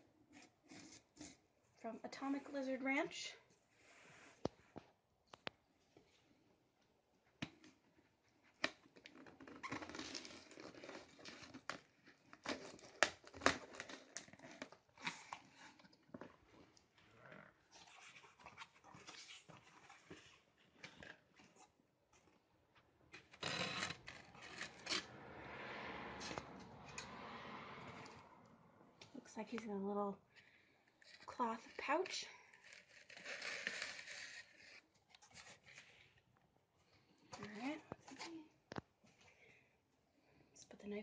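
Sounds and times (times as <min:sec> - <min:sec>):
knife scraping styrofoam: 0:00.3 - 0:01.4, 0:23.2 - 0:25.1, 0:31.0 - 0:36.0
tape slitting and cardboard rustling: 0:08.5 - 0:15.8, 0:32.5 - 0:35.9.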